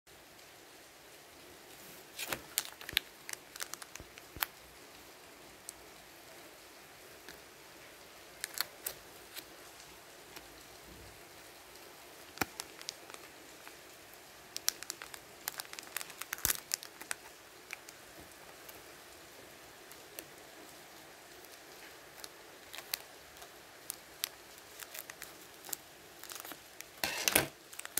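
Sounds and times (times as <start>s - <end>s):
faint steady hiss: 0.1s - 27.9s
foil wrapper crinkling: 1.8s - 4.6s, 8.3s - 10.5s, 12.2s - 27.9s.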